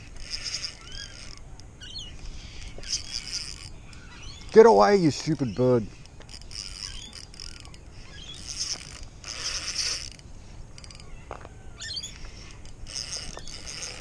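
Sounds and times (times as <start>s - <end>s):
fishing reel whirring: 0.0s - 1.6s, 2.3s - 5.0s, 5.6s - 11.1s, 11.8s - 14.0s
squeaky chirp: 0.2s - 10.2s, 10.8s - 14.0s.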